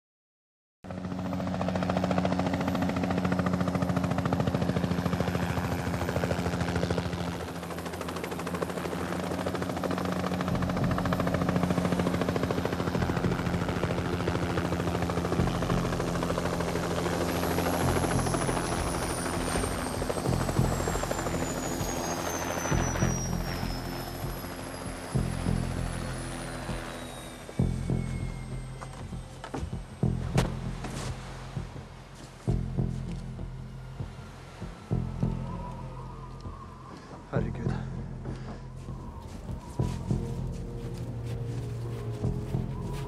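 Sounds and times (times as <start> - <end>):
helicopter rotor chopping: 0.9 - 43.0
high tone sliding downward: 16.5 - 30.3, 33.4 - 37.4, 38.6 - 43.0.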